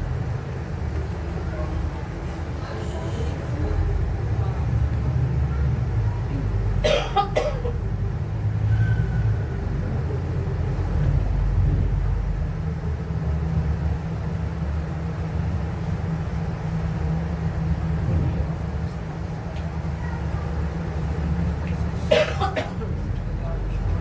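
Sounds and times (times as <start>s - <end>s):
bus engine and road rumble: 0.0s - 24.0s.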